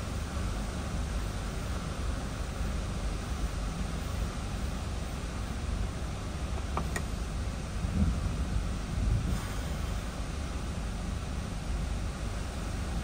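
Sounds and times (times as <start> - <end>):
strong wind buffeting car: 6.5 - 9.5.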